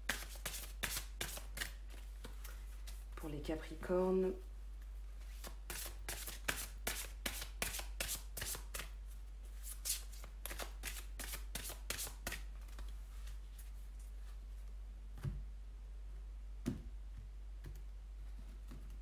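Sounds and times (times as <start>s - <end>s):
cards being shuffled: 5.2s - 8.9s, 9.6s - 13.4s.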